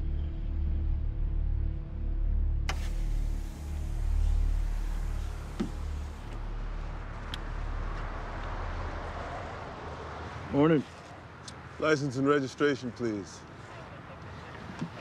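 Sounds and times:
car engine rumble: 0:02.3 - 0:11.8
highway traffic hiss: 0:02.7 - 0:15.0.

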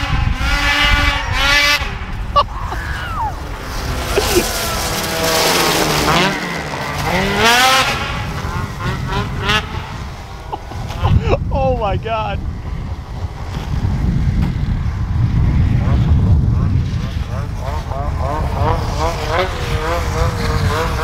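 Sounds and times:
snowmobile engine revving: 0:00.0 - 0:21.0.

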